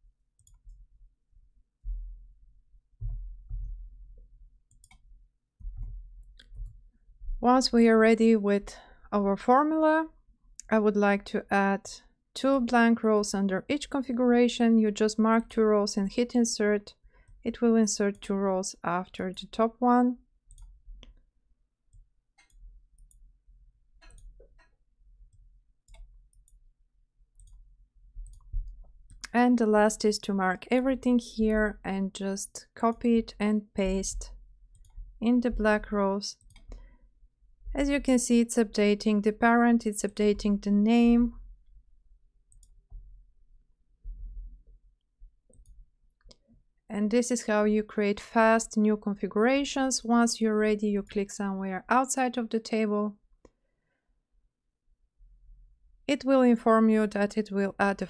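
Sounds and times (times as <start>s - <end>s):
computer mouse clicks: 0.4s - 0.8s, 4.7s - 6.8s, 20.5s - 21.2s, 21.9s - 23.2s, 24.0s - 26.6s, 27.4s - 27.6s, 28.2s - 29.4s, 34.7s - 35.1s, 36.3s - 36.9s, 42.5s - 43.1s, 45.5s - 46.4s
dull low thumps: 1.8s - 4.2s, 5.6s - 7.4s
low steady hum: 21.9s - 43.4s
computer keyboard and mouse clicks: 36.4s - 36.8s.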